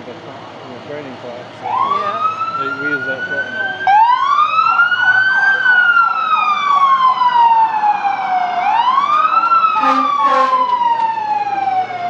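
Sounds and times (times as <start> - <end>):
fire truck siren wailing: 1.6 - 12.0
short horn blasts: 9.8 - 10.7.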